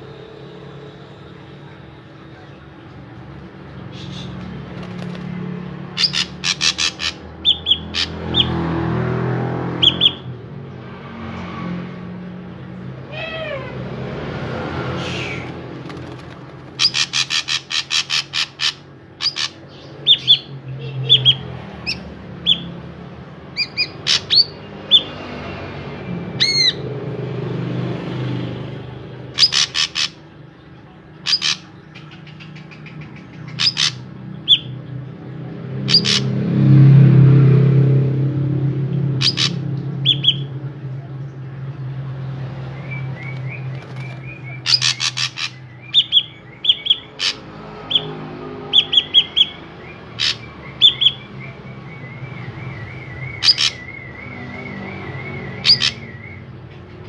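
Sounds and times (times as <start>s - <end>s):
bird calling: 3.8s - 5.2s, 5.9s - 8.6s, 14.9s - 22.8s, 23.5s - 25.2s, 29.3s - 30.4s, 31.1s - 34.9s, 35.8s - 36.4s, 39.2s - 40.6s, 42.8s - 57.0s.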